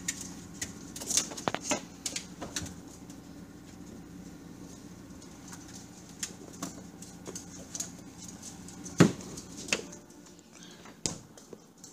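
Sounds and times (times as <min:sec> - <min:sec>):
refrigerator hum: 0:00.0 - 0:11.9.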